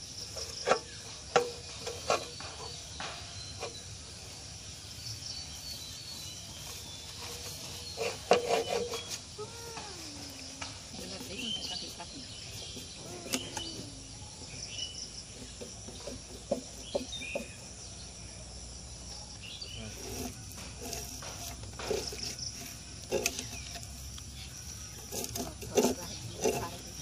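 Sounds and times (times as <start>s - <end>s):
insects chirring: 0.0s - 27.0s
fish scales scraping on blade: 7.2s - 9.2s, 19.8s - 24.1s, 24.8s - 27.0s.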